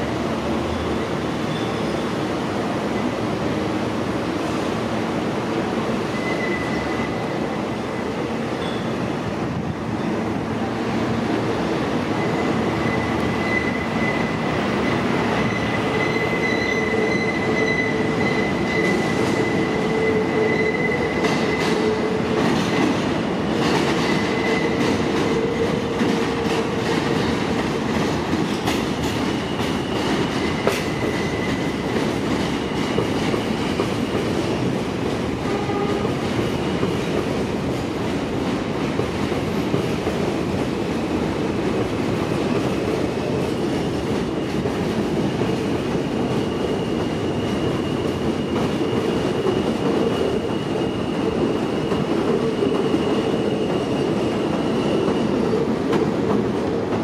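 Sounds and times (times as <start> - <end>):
train wheels squealing: 0.6 - 3.2, 5.9 - 9.1, 12.1 - 23.0, 23.9 - 26.8, 28.6 - 34.2, 45.4 - 55.9.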